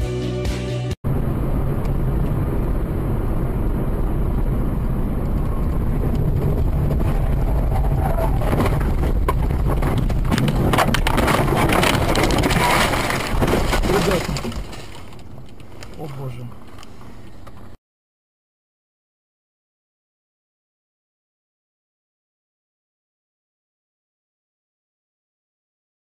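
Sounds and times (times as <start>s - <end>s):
intro music: 0.0s - 1.0s
road and engine rumble: 0.4s - 17.8s
car crashing through vegetation: 8.4s - 15.4s.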